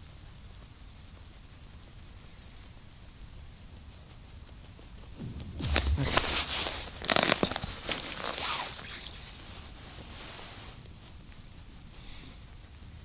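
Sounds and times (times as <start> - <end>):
clothing rustling on microphone: 4.9 - 11.9.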